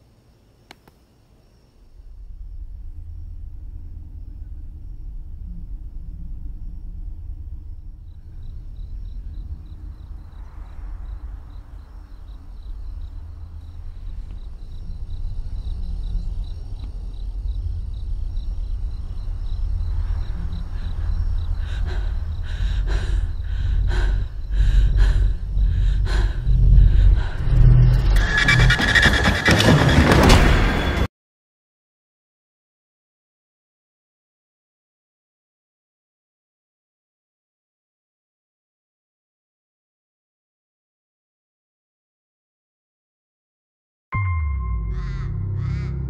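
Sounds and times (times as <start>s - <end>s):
faint high pulsing tone: 1.7s - 28.2s
low rumbling drone: 1.8s - 29.6s, 44.2s - 46.0s.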